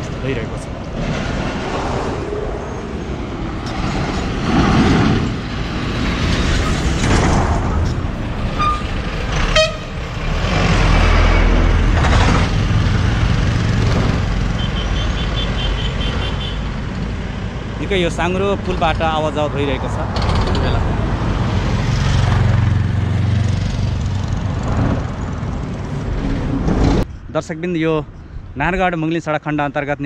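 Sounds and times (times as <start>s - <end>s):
trucks and buses passing: 0.0s - 27.4s
short horn toots: 8.6s - 9.9s.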